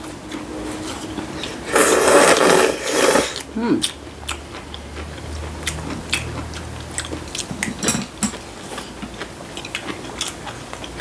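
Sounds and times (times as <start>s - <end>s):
dishes clattering: 7.5s - 8.4s.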